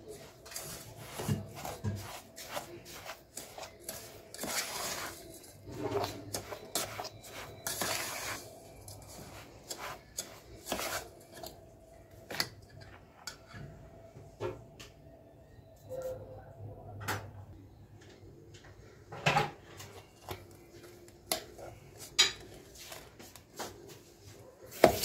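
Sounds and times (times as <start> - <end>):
spoon scraping crumb mixture: 0.0 - 13.6, 19.7 - 24.0, 24.6 - 25.0.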